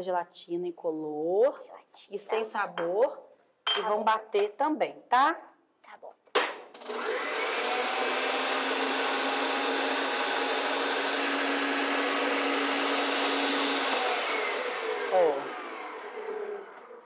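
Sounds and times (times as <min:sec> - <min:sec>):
stand mixer whisking: 0:06.8 - 0:17.0.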